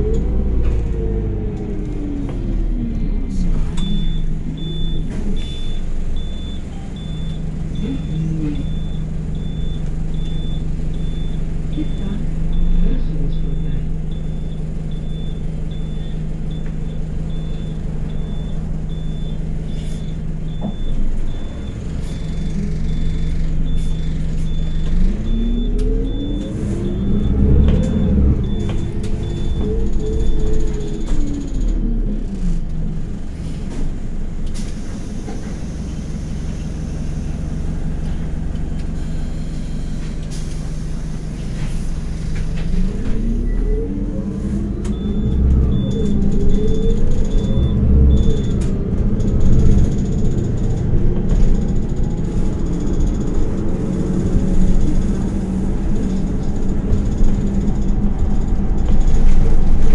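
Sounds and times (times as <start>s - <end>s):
bus engine running: 0.0s - 59.9s.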